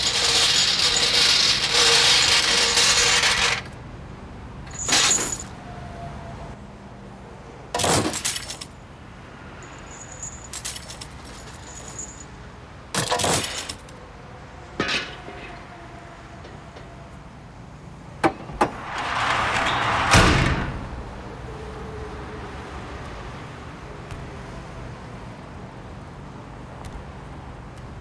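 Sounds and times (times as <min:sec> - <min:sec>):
small metal objects jangling: 0:00.0 - 0:03.6, 0:09.6 - 0:12.3
loud knock: 0:18.2 - 0:21.1
rush of noise: 0:18.3 - 0:22.6.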